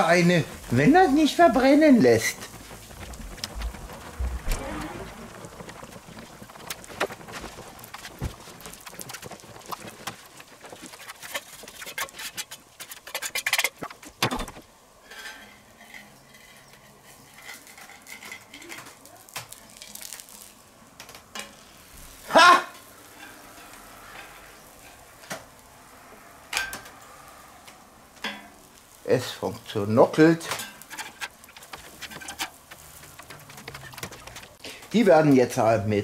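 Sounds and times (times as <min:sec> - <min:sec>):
metal spatula scraping on griddle: 0:09.7 - 0:14.1, 0:15.0 - 0:19.0, 0:21.3 - 0:27.6, 0:30.2 - 0:34.8.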